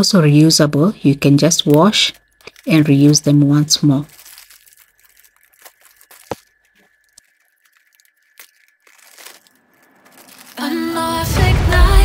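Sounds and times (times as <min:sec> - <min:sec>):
plastic bags crinkling and clicking: 0:01.4 - 0:11.2
music: 0:10.4 - 0:12.0.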